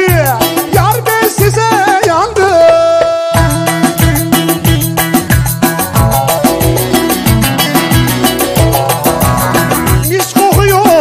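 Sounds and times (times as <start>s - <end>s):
driving bass and drum beat: 0.0s - 11.0s
ornamented lead melody: 3.2s - 11.0s.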